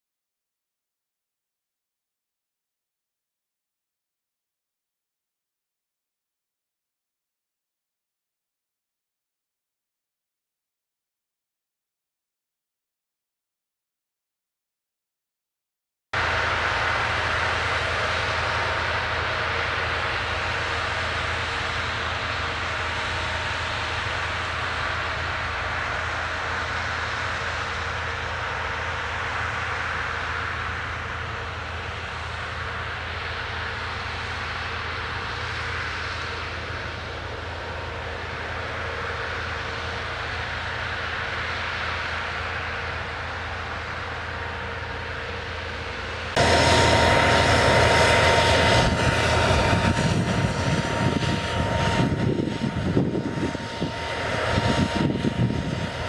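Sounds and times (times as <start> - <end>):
combine harvester running: 16.2 - 56.0.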